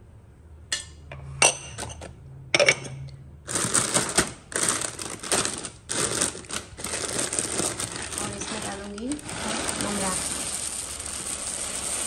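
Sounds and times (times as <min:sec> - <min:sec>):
crackling rustle: 0:03.5 - 0:12.0.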